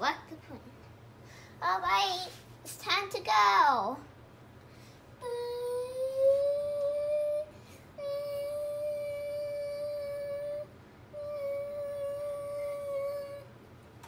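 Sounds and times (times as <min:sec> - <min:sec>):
child humming a steady note: 0:05.2 - 0:13.6.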